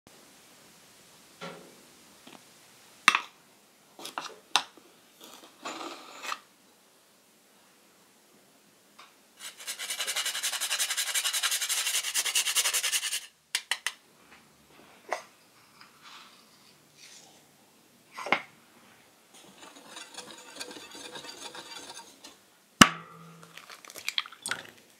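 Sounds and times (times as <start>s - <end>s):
nutmeg grated on a rasp: 9.4s - 13.3s, 19.4s - 22.4s
sharp clicks and taps: 13.5s - 14.0s.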